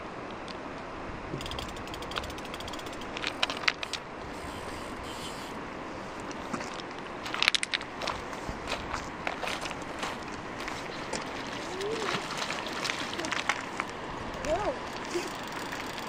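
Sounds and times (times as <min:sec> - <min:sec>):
river rushing: 0:00.0 - 0:16.0
fishing reel clicking: 0:01.4 - 0:04.0, 0:15.1 - 0:16.0.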